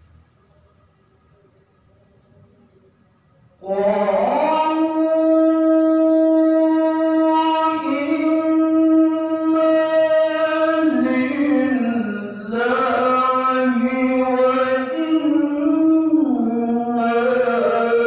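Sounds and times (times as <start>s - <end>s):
man reciting melodically: 3.6s - 18.0s.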